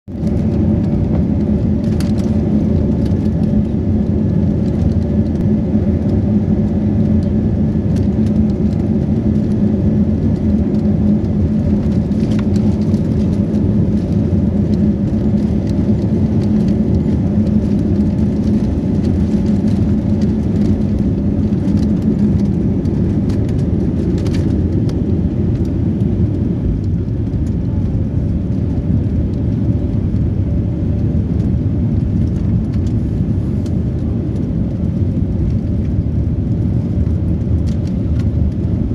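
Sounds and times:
jet engines rumbling in cabin: 0.1s - 38.9s.

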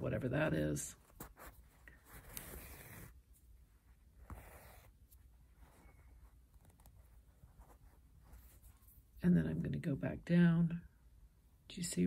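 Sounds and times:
thread drawn through fabric: 1.0s - 9.2s.

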